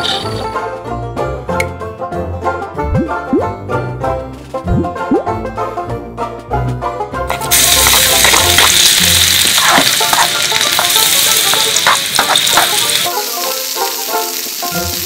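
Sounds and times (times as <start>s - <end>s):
meat sizzling in hot oil: 7.3s - 15.0s
metal ladle stirring and tapping pan: 9.6s - 13.1s.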